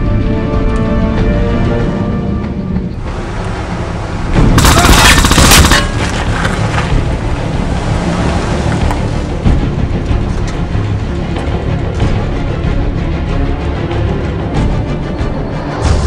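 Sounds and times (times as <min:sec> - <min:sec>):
automatic gunfire: 0:04.6 - 0:06.2.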